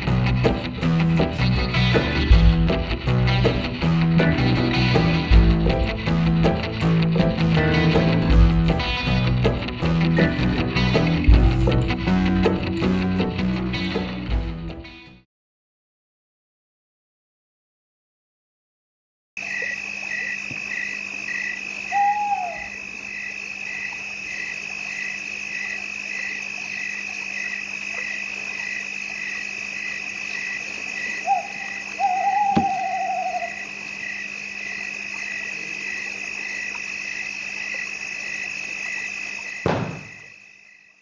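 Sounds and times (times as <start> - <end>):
insects chirping: 19.4 - 41.0
owl hooting: 20.1 - 22.8, 30.4 - 34.2
thump: 39.7 - 40.3.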